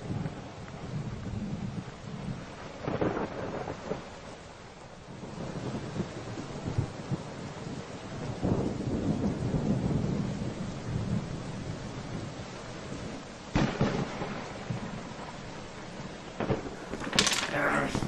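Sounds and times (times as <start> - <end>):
steady rain: 0.0 - 18.0
thunder rumbling: 0.0 - 18.0
sharp thunderclap: 2.8 - 4.1, 5.2 - 11.4, 13.5 - 15.2, 16.4 - 18.0.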